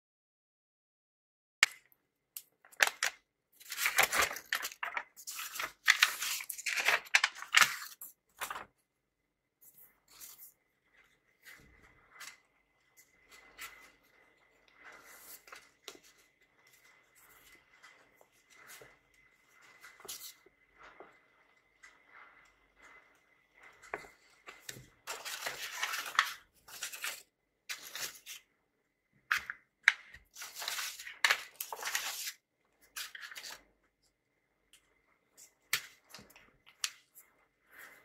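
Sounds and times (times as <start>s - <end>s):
books being handled: 2.5s - 8.9s, 9.6s - 28.5s, 29.2s - 33.7s
paper envelope rustling and crackling: 2.6s - 8.8s, 9.6s - 21.0s, 23.8s - 28.4s, 29.3s - 33.6s.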